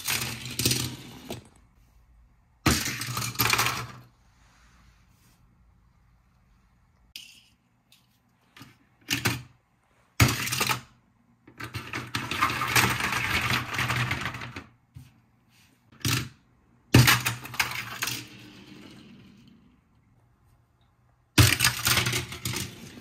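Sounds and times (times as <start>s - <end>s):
toy car clattering on plastic track: 0.0s - 1.5s, 2.7s - 4.1s, 10.2s - 14.7s, 15.9s - 19.5s, 21.4s - 23.0s.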